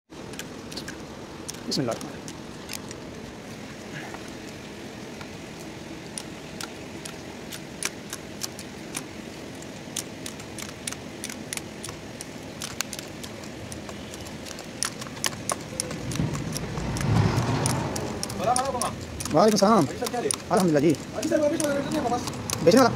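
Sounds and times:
low rumble: 15.8 - 19.4.

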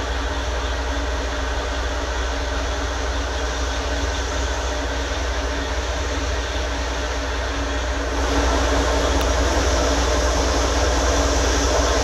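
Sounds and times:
sewer jetter rumble and hiss: 0.0 - 12.0.

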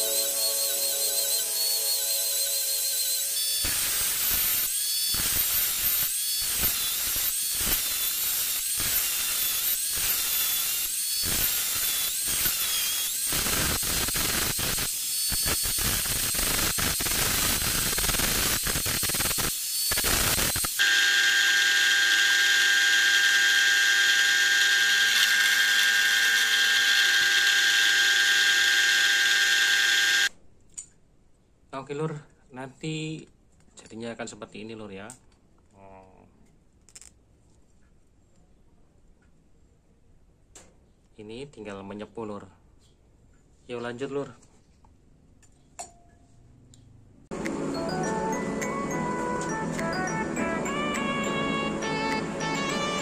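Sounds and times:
angle grinder whining on steel: 0.0 - 30.3.

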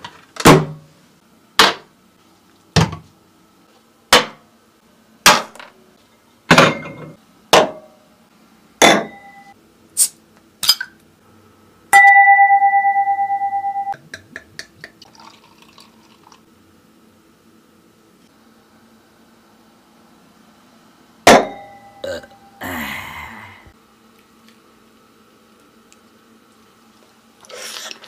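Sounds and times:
ringing metallic clang: 12.0 - 13.9, 21.3 - 22.5
beer pouring into a glass: 15.0 - 16.5.

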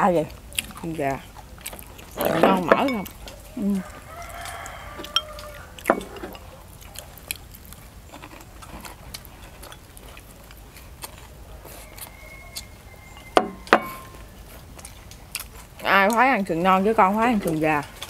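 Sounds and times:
low background hum: 0.0 - 18.0
chopsticks tapping bowls: 2.2 - 3.4, 4.4 - 6.5, 12.6 - 14.2.

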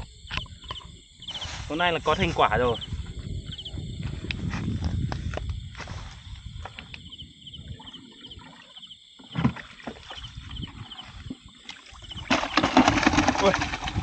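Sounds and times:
fish thrashing and splashing: 9.3 - 14.0.

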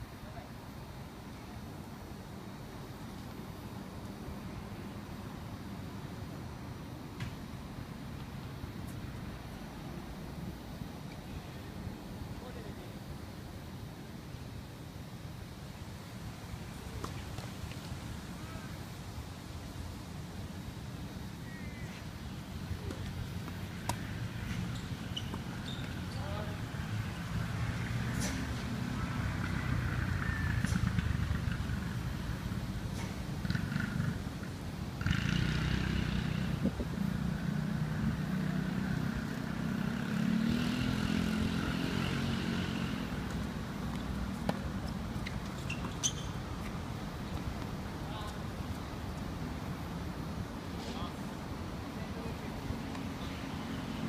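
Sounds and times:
road traffic rumble: 0.0 - 54.0
tennis ball struck by racket: 22.9 - 24.1
vehicle engine passing: 35.0 - 44.2.

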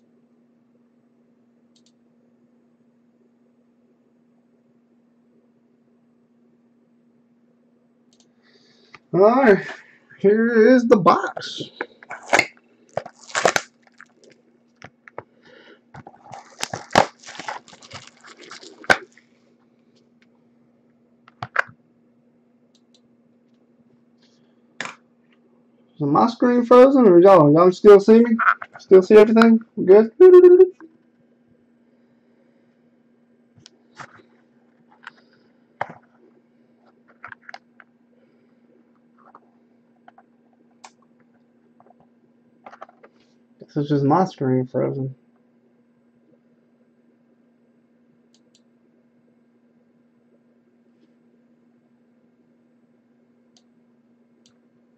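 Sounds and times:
steady low hum: 0.0 - 54.9
plastic wrap crinkling and tearing: 12.1 - 14.4, 16.0 - 19.3.

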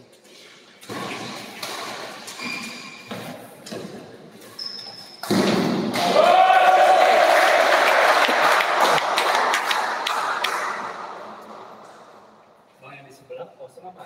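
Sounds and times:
shoe squeaks on court: 0.8 - 3.6, 4.4 - 5.4
spectators shouting and cheering: 6.0 - 11.3.

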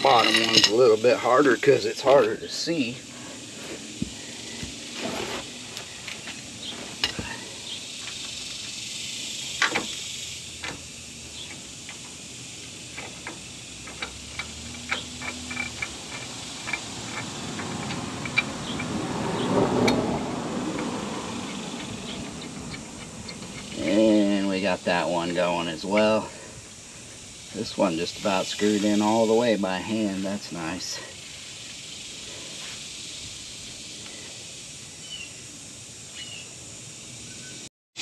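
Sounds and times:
rustle of movement: 0.0 - 24.8
steady background hiss: 0.0 - 37.7
metallic clicks of bolt threading: 12.9 - 18.9.

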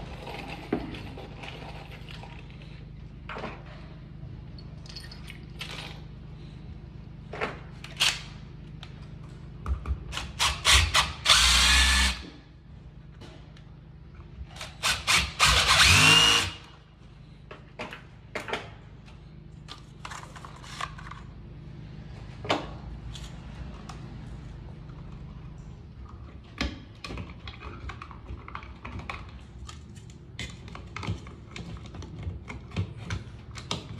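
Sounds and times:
cordless drill driving screws: 10.4 - 12.2, 14.8 - 16.7.

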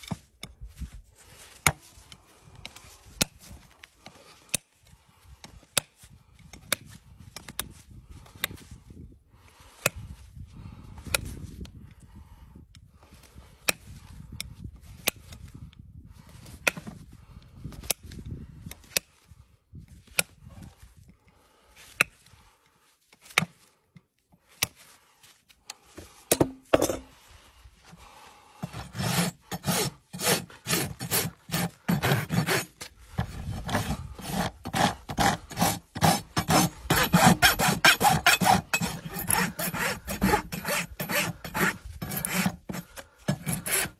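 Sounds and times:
rasp scraping a hoof: 25.8 - 27.2, 28.5 - 43.9.

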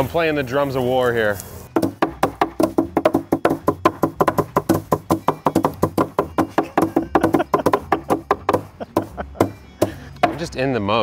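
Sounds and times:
sticks beating sack: 1.7 - 10.5.

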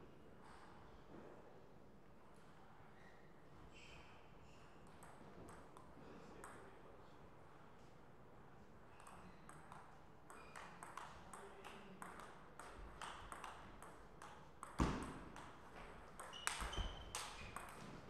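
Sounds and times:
table tennis ball clicking: 9.0 - 17.8.

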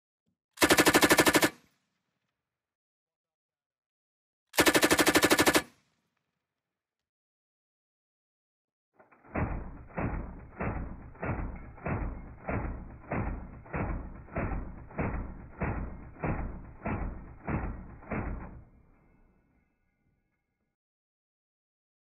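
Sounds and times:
slowed machine gun shots: 0.6 - 1.7, 4.6 - 5.7, 9.1 - 18.8.

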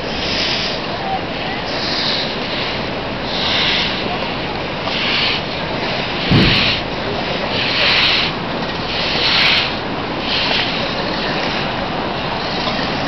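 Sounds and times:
flooding river rushing: 0.0 - 13.0
short low thud: 6.3 - 6.9.

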